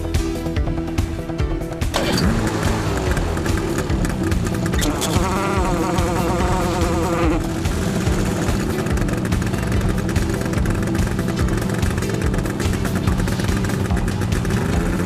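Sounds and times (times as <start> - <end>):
fire pump engine buzzing: 1.9 - 14.2
wavering higher note: 4.8 - 7.5.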